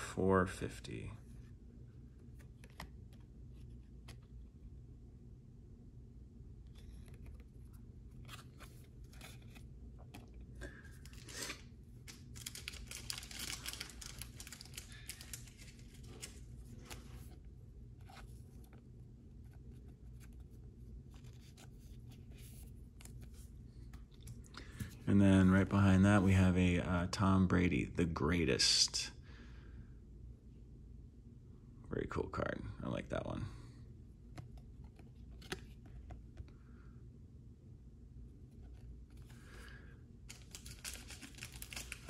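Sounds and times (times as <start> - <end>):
trading cards shuffled: 2.2 - 4.4, 6.7 - 17.4, 34.4 - 36.4.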